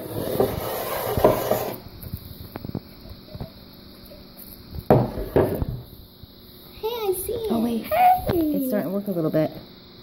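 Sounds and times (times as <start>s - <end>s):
glass jar rubbing on wood: 0.0s - 1.8s.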